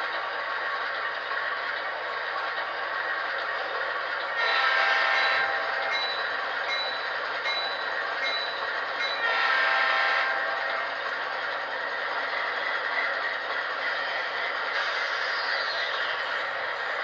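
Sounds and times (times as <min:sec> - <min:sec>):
locomotive horn blasts: 0:04.4 - 0:05.8, 0:09.2 - 0:10.7.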